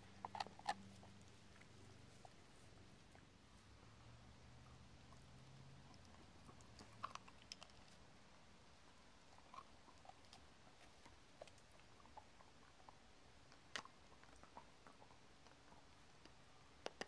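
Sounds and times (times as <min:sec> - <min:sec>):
dogs gnawing bones: 0:00.0 - 0:02.4, 0:05.0 - 0:08.0, 0:09.2 - 0:17.0.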